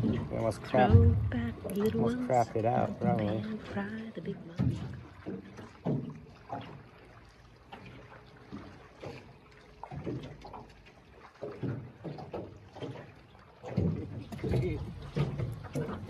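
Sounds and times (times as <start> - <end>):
waves lapping against boat hull: 0.0 - 16.0.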